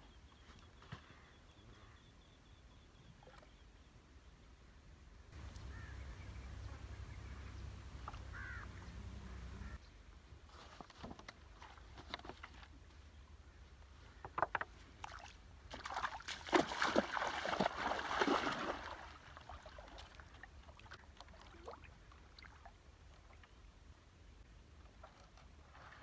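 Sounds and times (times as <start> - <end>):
water sloshing and splashing: 10.7 - 12.8, 14.4 - 23.6.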